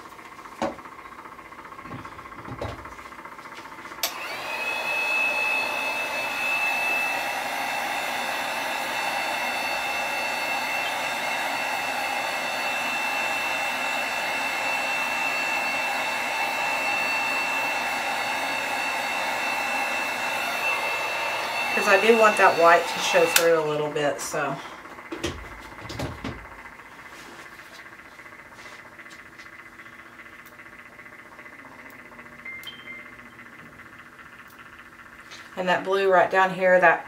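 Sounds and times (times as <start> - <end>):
heat gun blowing with high whine: 1.7 - 36.9
heat gun switch click: 4.0 - 4.2.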